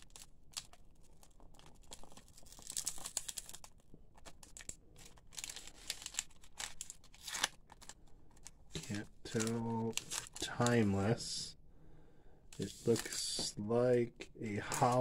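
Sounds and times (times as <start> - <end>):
foil wrapper tearing and crinkling: 0.0 - 10.8.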